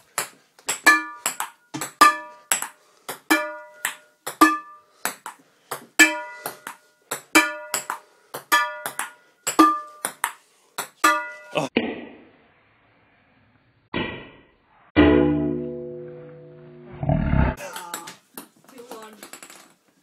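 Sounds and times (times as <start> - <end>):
frying pan pinging on ball: 0.7 - 4.8.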